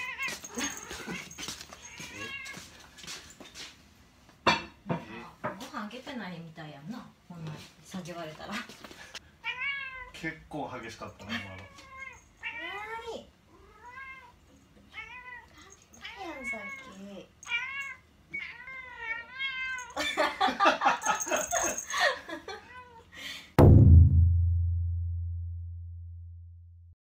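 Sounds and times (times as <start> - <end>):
cat meowing: 0.0 - 2.7, 9.4 - 10.3, 11.1 - 20.0
loud low boom: 23.6 - 26.6.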